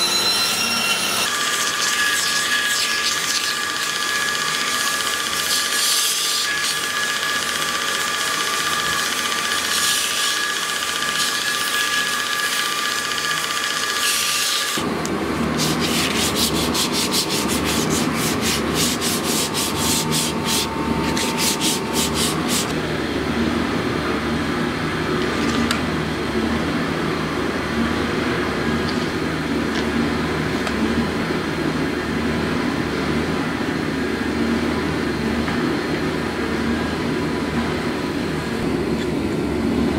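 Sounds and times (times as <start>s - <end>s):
belt sander whine: 0.0s - 39.9s
rubbing strokes: 15.6s - 22.7s.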